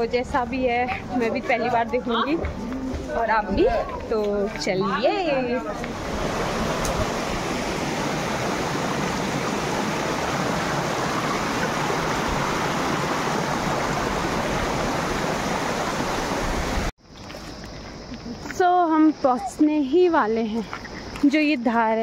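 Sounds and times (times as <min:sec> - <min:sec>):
stream rushing over rocks: 0:05.8 - 0:16.9.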